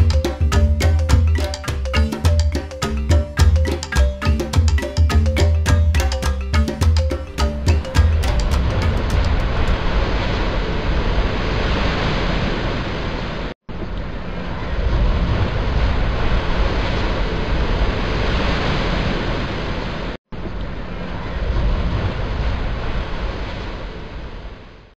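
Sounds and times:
surf breaking: 6.0 - 13.5.

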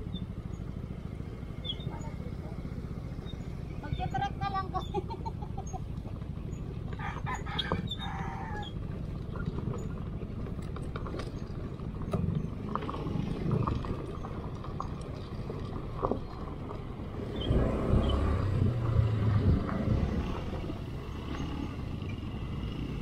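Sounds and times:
rooster crowing: 7.0 - 8.8.

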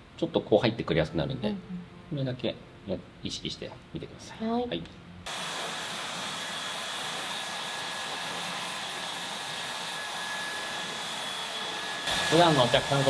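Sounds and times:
hair dryer blowing: 5.3 - 13.0.

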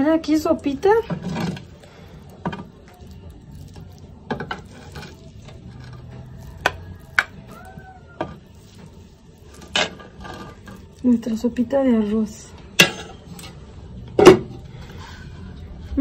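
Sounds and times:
spoon scraping rice from pot: 1.1 - 7.6, 8.2 - 11.0.

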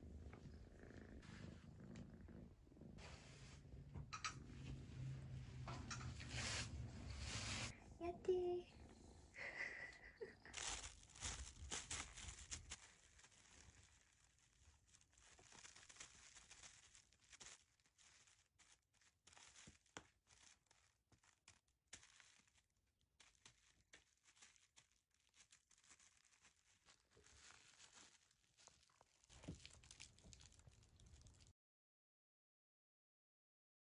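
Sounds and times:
plastic sheet crinkling: 9.6 - 31.5.

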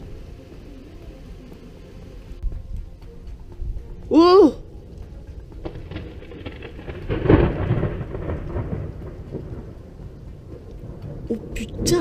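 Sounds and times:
thunder rumbling: 4.6 - 12.0.

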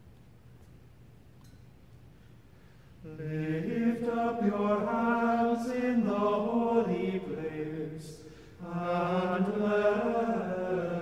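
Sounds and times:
choir singing chant: 3.1 - 11.0.

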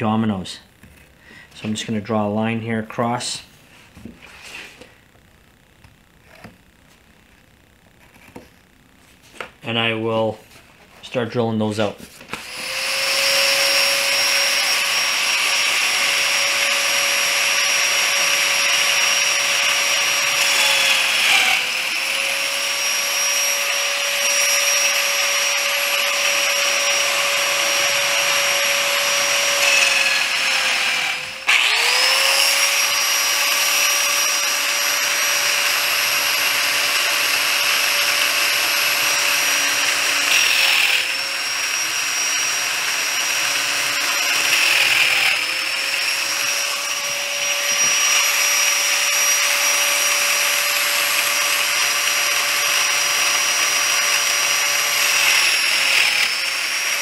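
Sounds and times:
plate joiner motor whining: 12.3 - 57.0.

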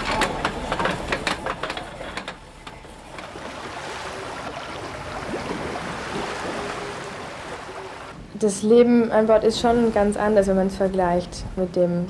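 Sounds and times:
sea rushing: 0.0 - 8.4, 9.2 - 11.6
wind: 0.0 - 12.0.

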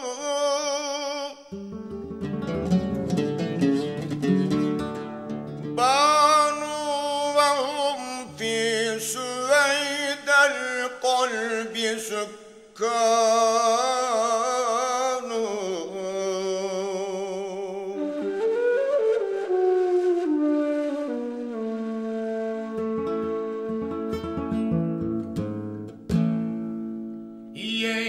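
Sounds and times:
man singing melismatic phrases: 0.0 - 1.9, 5.8 - 18.6, 27.5 - 28.0.

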